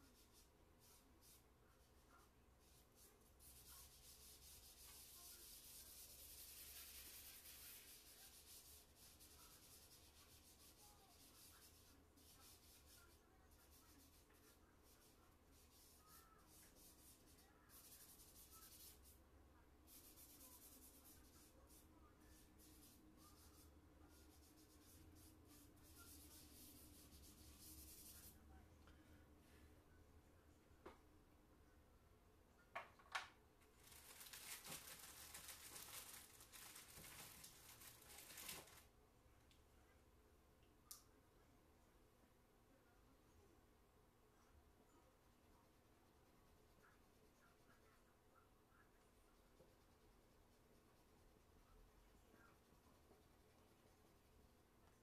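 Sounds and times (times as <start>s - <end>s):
charcoal rubbing on paper: 0.0s - 19.2s, 19.9s - 28.4s.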